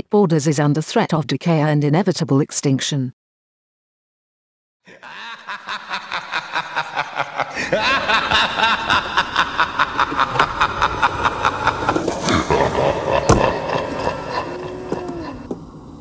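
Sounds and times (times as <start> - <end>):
gliding pitched sounds: 5.7 - 16.0.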